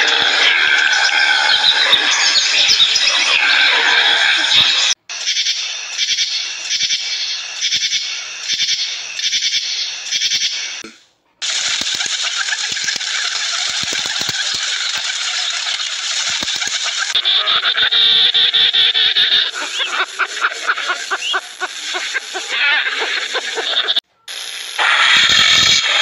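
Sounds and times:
locusts rattling: 11.4s - 17.2s
pigeons feeding on grass: 11.4s - 17.8s.

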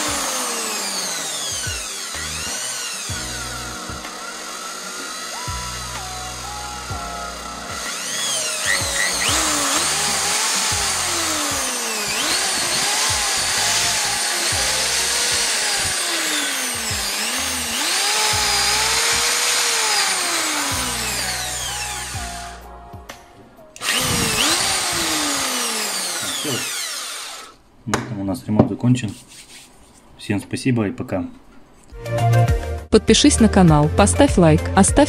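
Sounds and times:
impact drill motor whine: 0.0s - 22.6s, 23.8s - 27.6s.

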